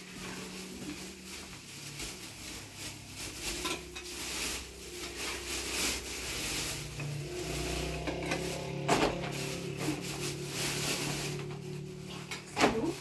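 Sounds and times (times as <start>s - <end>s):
plastic bag rustling: 0.0s - 13.0s
metal ladle scraping a pan: 3.5s - 12.4s.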